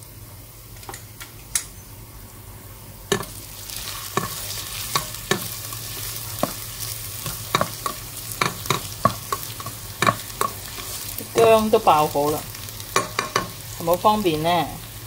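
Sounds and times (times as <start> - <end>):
ginger sizzling in oil: 3.1 - 15.0.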